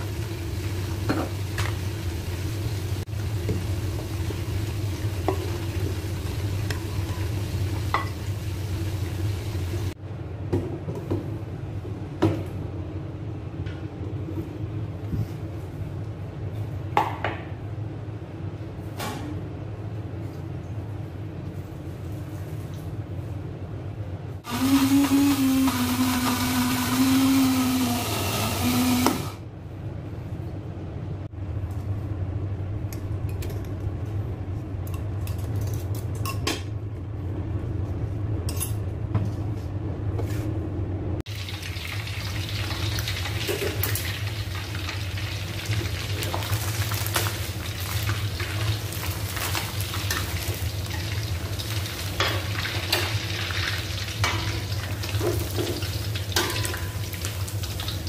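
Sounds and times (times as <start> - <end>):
chicken frying in hot oil: 0.0 - 10.0, 41.3 - 58.0
electric blender grinding: 24.4 - 29.4.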